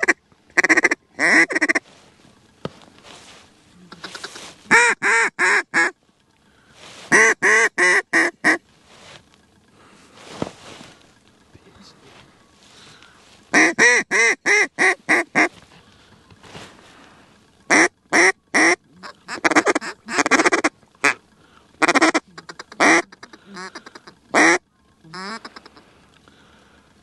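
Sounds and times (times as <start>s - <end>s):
duck call quacking: 0.0s - 1.8s, 3.9s - 6.0s, 7.1s - 8.6s, 13.5s - 15.6s, 17.7s - 21.2s, 21.8s - 25.9s.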